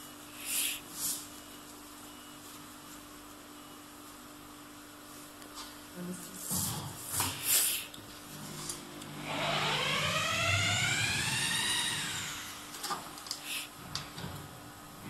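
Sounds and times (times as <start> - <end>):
motor whine: 8.4 - 14.3.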